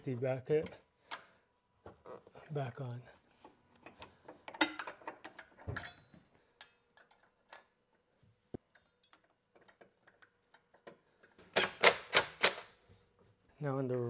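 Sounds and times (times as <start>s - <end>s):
metal bracket clicks and knocks: 3.9s - 7.7s.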